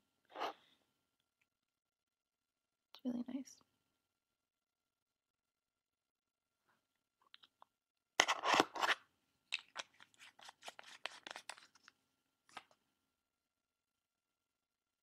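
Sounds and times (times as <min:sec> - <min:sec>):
makeup jar scraping: 0:08.2 - 0:11.8.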